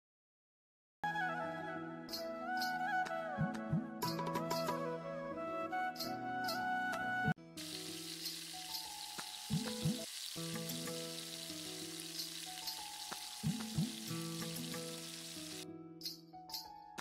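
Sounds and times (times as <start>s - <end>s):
background music: 1.0s - 17.0s
frying in hot oil sizzle: 7.6s - 15.6s.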